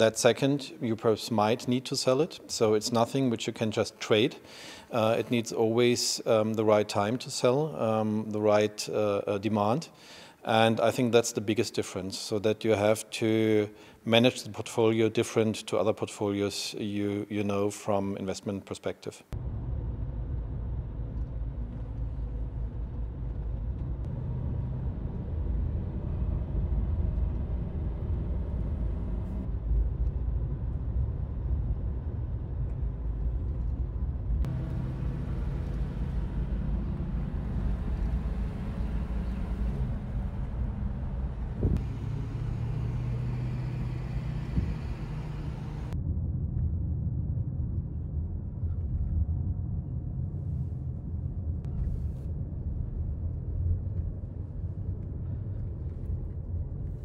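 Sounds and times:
car engine and road noise: 19.3s - 46.0s.

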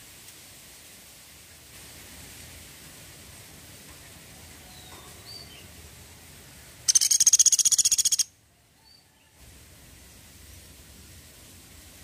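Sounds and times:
woodpecker rattle: 6.9s - 8.3s.

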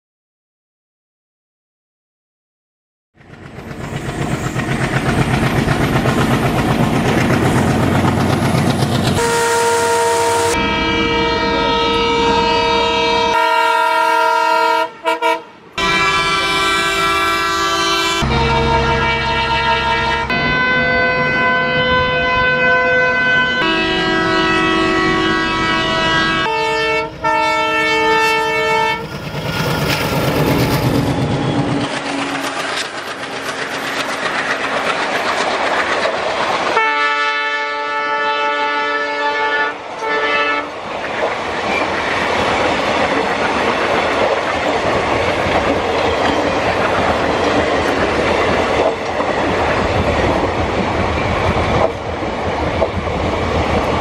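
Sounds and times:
train rumble and wheel clatter: 3.2s - 54.0s
diesel locomotive horn: 9.2s - 29.2s, 36.7s - 40.8s.

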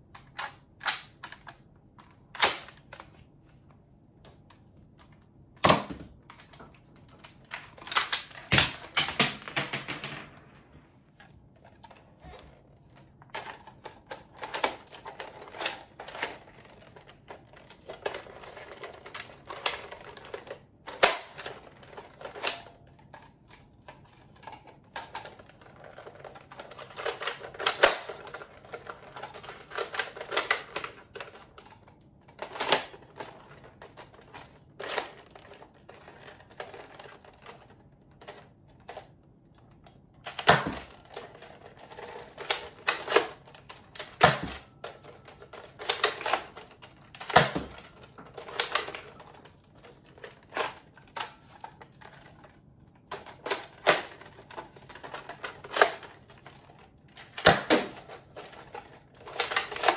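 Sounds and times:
plastic toy blaster clicking: 0.2s - 3.1s, 13.4s - 22.8s, 24.4s - 31.6s, 40.3s - 52.3s, 53.1s - 56.2s, 57.2s - 59.9s.

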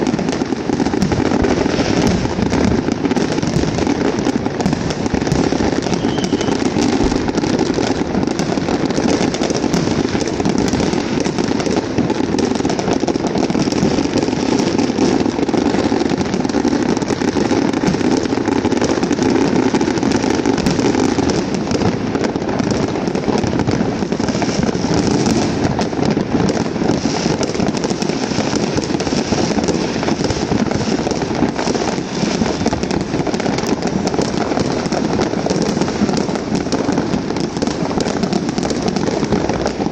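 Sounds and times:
fireworks crackling and banging: 0.0s - 39.9s.

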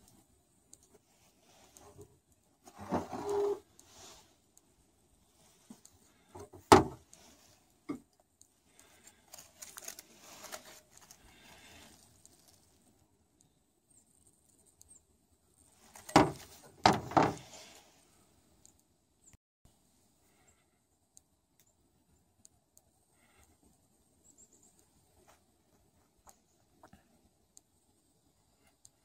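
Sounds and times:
soft rustling: 0.0s - 13.0s.

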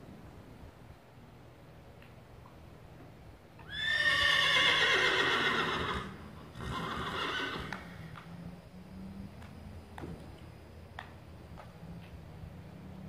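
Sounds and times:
horse whinnying: 3.6s - 7.8s.

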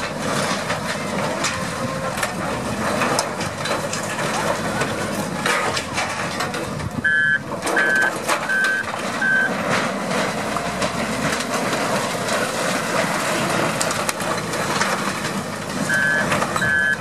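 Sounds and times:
heavy diesel engines running: 0.0s - 17.0s
rubble and metal crunching: 0.0s - 17.0s
reversing alarm beeping: 7.0s - 9.6s, 15.9s - 17.0s.

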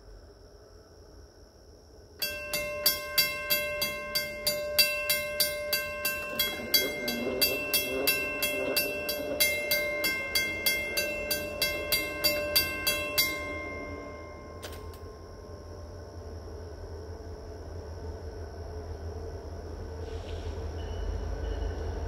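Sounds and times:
mechanical crossing bell ringing: 2.2s - 15.6s.

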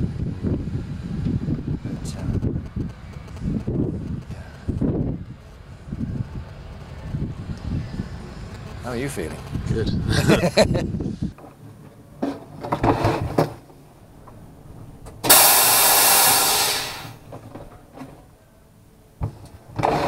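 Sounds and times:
loud hiss: 15.2s - 17.3s.

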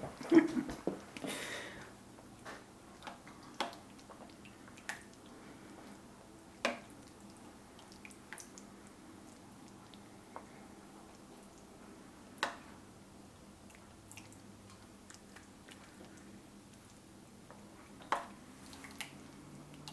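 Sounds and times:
wet squishing: 3.0s - 11.8s, 13.5s - 17.1s, 17.8s - 19.9s.

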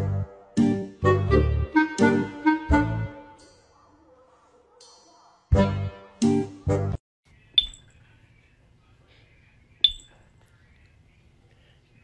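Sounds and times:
faint low hum: 7.3s - 12.0s.

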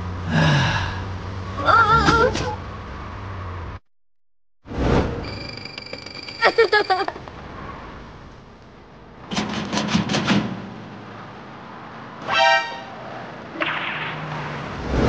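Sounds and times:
horn-like honk: 12.2s - 13.0s.

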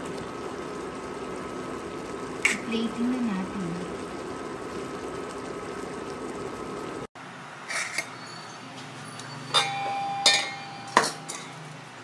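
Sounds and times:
sauce bubbling in wok: 0.0s - 7.1s
ceramic plate clinking: 9.5s - 11.6s.

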